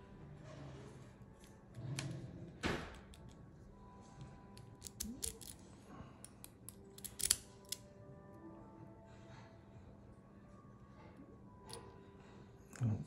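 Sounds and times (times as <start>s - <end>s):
metallic clicks and scrapes of lock: 4.6s - 7.8s.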